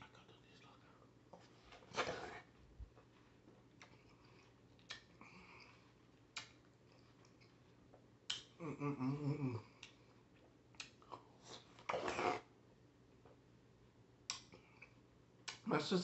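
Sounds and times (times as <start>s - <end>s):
watermelon being chewed: 1.9s - 12.5s
person humming mmm: 8.6s - 9.9s.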